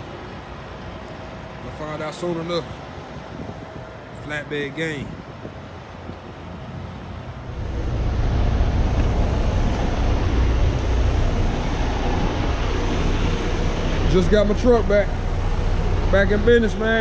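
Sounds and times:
truck diesel engine rumbling: 7.3s - 17.0s.

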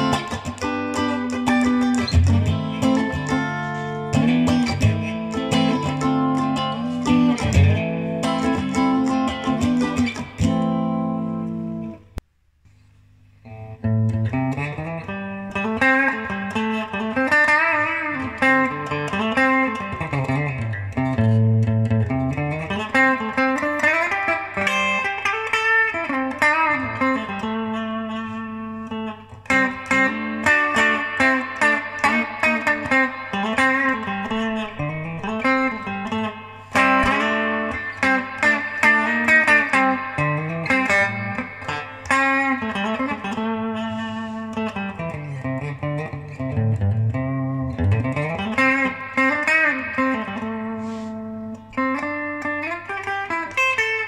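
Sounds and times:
electric guitar with pitch bends: 0.0s - 54.0s.

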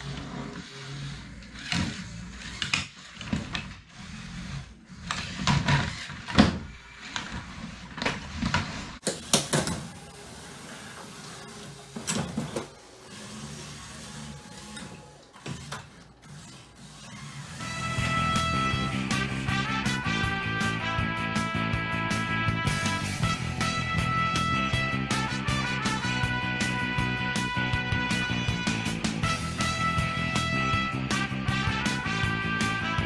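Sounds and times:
small electric motors humming: 9.8s - 19.0s.

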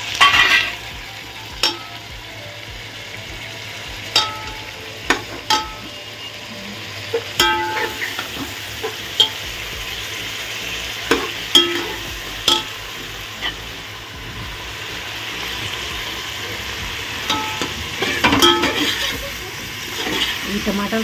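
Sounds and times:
vegetables sizzling in oil: 0.0s - 21.0s
metal ladle scraping pot: 17.2s - 19.2s, 19.9s - 20.5s.

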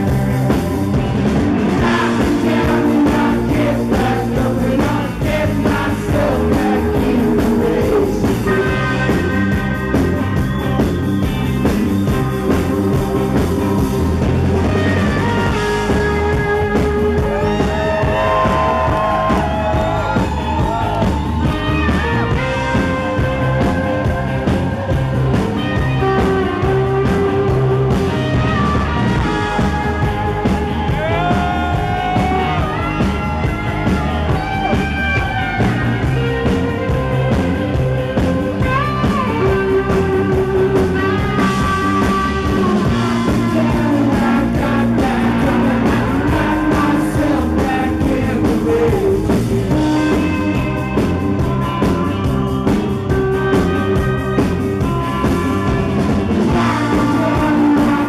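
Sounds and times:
lead guitar bending notes: 0.0s - 47.2s, 49.2s - 58.0s
live rock band playing: 0.0s - 58.0s.

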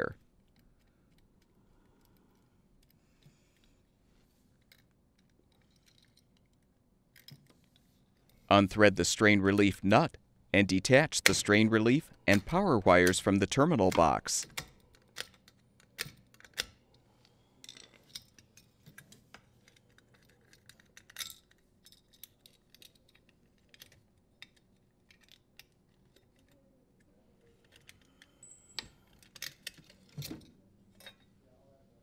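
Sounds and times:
small metallic clicks and rattles: 4.6s - 7.6s, 14.4s - 26.6s, 27.5s - 31.3s.

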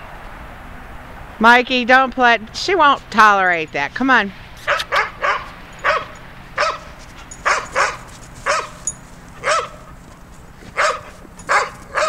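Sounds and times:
dog barking: 4.6s - 10.0s, 10.7s - 12.0s.

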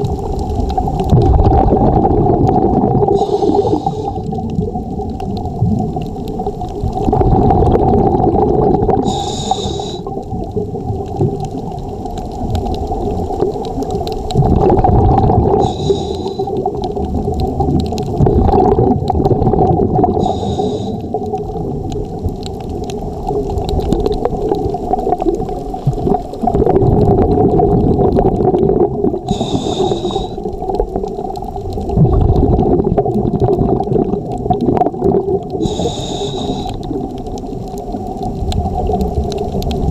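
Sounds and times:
gurgling exhaled bubbles: 0.0s - 39.9s
regulator hiss on inhale: 3.1s - 4.3s, 9.0s - 10.1s, 15.6s - 16.7s, 20.2s - 21.2s, 29.2s - 30.5s, 35.6s - 37.0s.

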